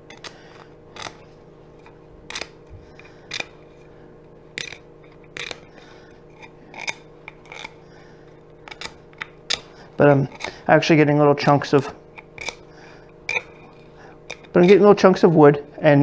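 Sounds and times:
hand scraper scraping wood: 0:08.6 - 0:10.7, 0:11.6 - 0:15.8.

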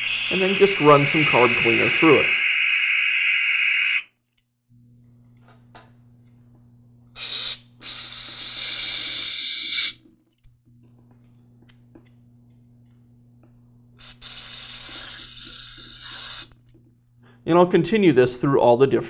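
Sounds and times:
aerosol spray hissing: 0:00.0 - 0:04.0, 0:07.2 - 0:10.0, 0:14.0 - 0:16.5.

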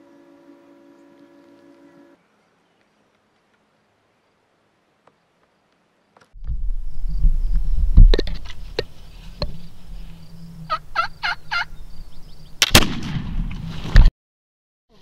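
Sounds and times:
low rumble: 0:06.4 - 0:11.0
turkey call notes: 0:08.4 - 0:11.8
gunshot with ringing tail: 0:12.6 - 0:13.6.

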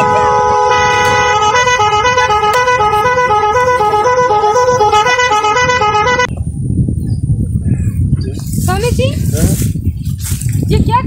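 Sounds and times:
reedy two-note horn: 0:00.0 - 0:06.3.

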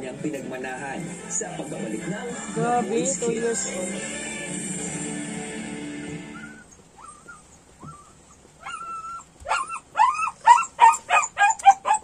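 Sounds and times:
dog whining: 0:06.2 - 0:12.0
dog yipping: 0:06.3 - 0:12.0.

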